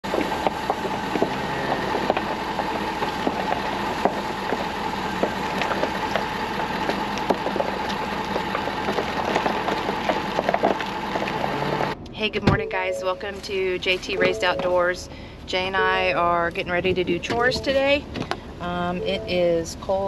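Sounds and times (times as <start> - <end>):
pickup truck engine running: 0.0 - 12.0.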